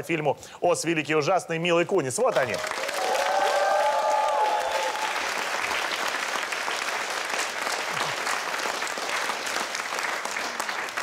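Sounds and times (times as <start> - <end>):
audience applauding: 2.3 - 11.0.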